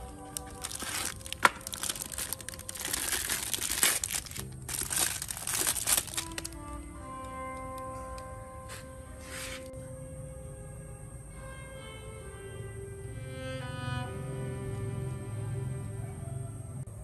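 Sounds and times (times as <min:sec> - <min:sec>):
wrapping crinkling and rustling: 0:00.0 - 0:08.3
background music with held notes: 0:00.0 - 0:17.0.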